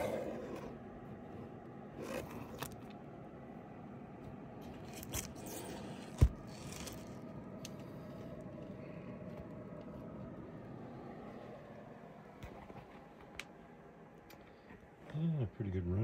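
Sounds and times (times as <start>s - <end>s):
comic books scraping and rattling: 0.0s - 2.9s, 4.6s - 8.6s.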